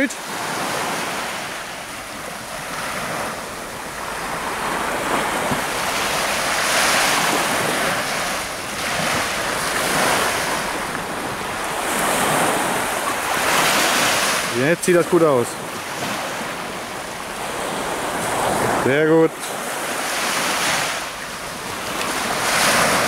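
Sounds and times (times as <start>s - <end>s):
surf breaking on beach: 0.0s - 23.0s
wind buffeting microphone: 0.3s - 14.6s.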